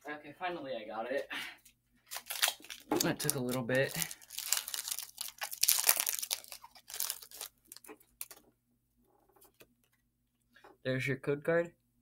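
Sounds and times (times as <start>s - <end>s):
foil wrapper crinkling: 2.1s - 8.4s.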